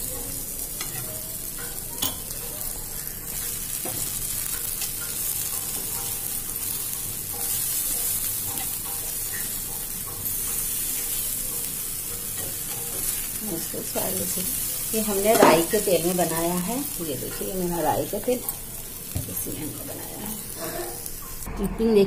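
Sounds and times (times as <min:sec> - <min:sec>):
patties sizzling in oil: 0:00.0 - 0:21.5.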